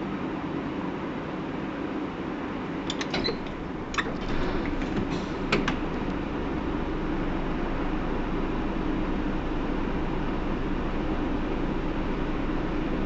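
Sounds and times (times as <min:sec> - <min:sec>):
bus engine and road drone: 0:00.0 - 0:13.0
bus body creaks and rattles: 0:02.8 - 0:09.5.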